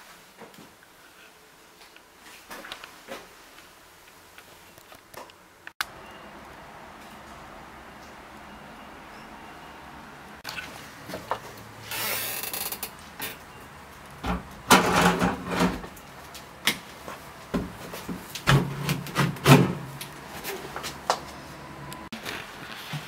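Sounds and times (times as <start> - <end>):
metal cabinet door rattling: 14.2 - 15.9.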